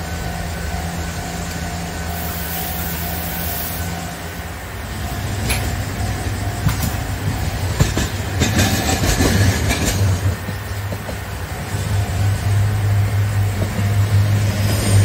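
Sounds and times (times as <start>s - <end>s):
tram wheels clicking over rail joints: 4.8s - 15.0s.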